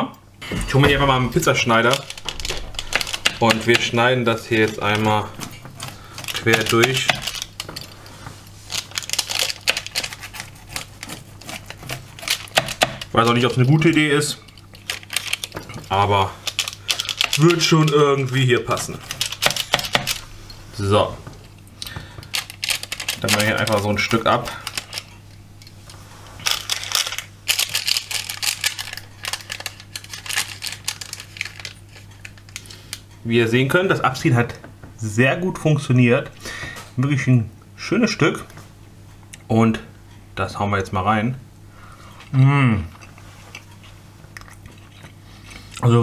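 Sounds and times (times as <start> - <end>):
steady low hum: 0.0 - 46.0
pizza cutter crunching through crust: 1.4 - 20.2.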